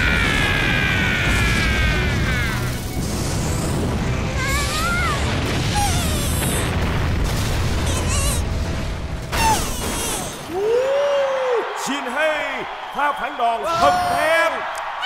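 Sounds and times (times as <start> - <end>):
explosive rumble: 0.0 - 9.5
dramatic music: 0.1 - 10.2.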